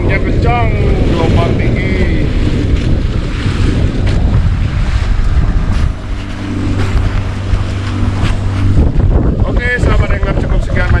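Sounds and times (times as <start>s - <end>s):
boat engine humming: 0.0s - 11.0s
wind buffeting microphone: 0.0s - 11.0s.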